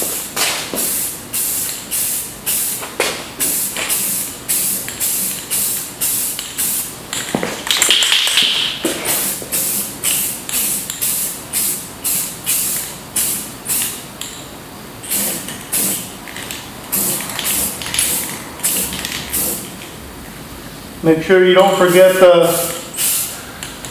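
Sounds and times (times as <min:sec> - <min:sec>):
aerosol can spraying: 0:15.1 - 0:16.0, 0:16.9 - 0:19.7, 0:21.8 - 0:23.3.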